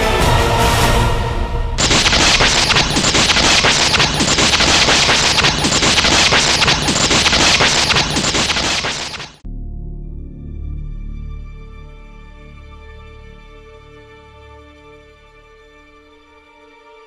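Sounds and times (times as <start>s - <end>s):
electric lightning crackling: 1.8s - 9.4s.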